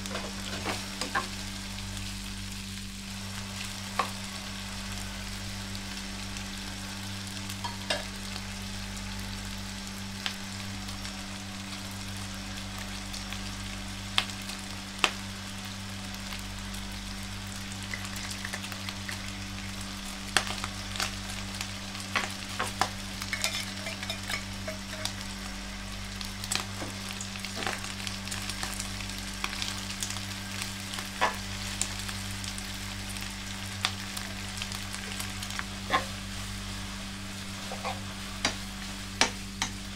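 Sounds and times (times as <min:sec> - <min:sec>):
pork sizzling in frying pan: 0:00.0 - 0:39.9
steady low hum: 0:00.0 - 0:39.9
utensil scraping and tapping pan: 0:23.3 - 0:25.1.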